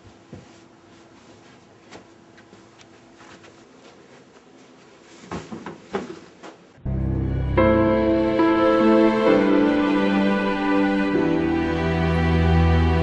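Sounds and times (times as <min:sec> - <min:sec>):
fabric rustling: 0:00.0 - 0:06.7.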